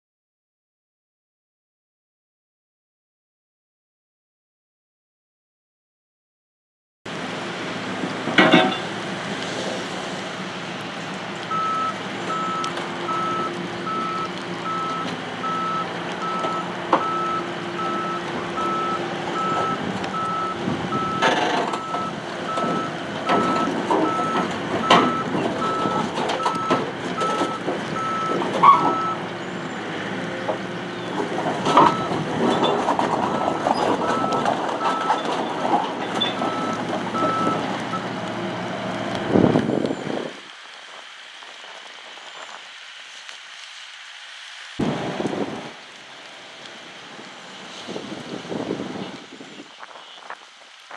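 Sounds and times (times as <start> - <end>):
excavator diesel engine running: 7.1 - 39.6
steel tracks clanking on metal: 8.2 - 9.0
reversing alarm beeping: 11.5 - 29.2, 31.7 - 32.2, 33.4 - 35.2, 36.3 - 38.0.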